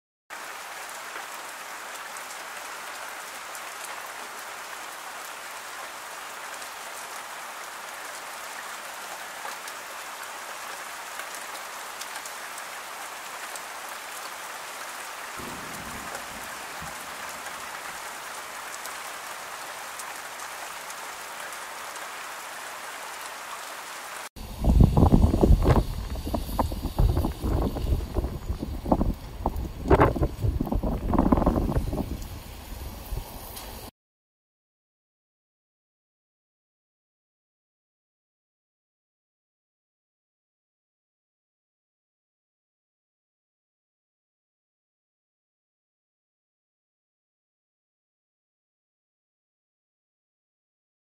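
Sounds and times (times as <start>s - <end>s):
rain falling through trees: 0.3s - 33.9s.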